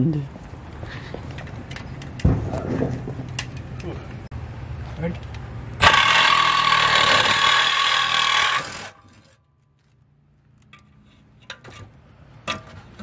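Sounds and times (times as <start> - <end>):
reciprocating saw cutting metal pipe: 5.8 - 9.4.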